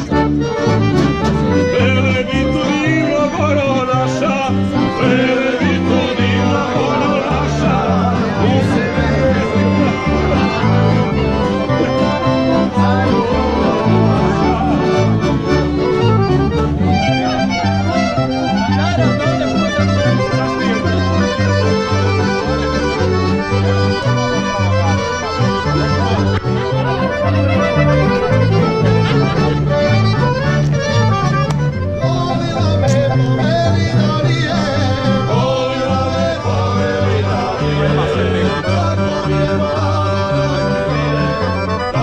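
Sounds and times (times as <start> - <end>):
accordion instrumental music: 0.0 - 42.0.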